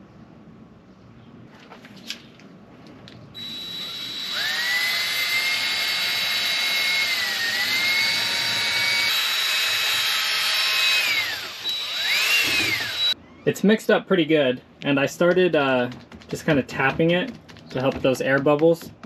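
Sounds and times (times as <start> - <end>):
cordless drill motor whine: 3.4 - 13.2.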